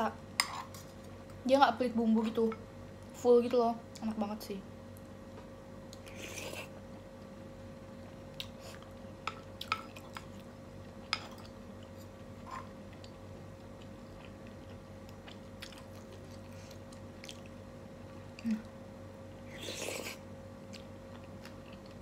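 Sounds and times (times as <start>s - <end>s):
faint steady hum: 0.0s - 22.0s
person chewing: 8.0s - 17.6s, 19.3s - 22.0s.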